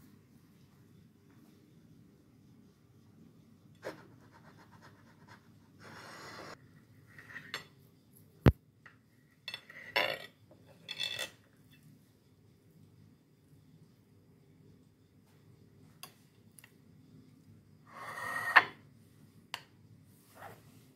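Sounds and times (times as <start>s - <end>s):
knife scraping china plate: 17.9s - 18.8s.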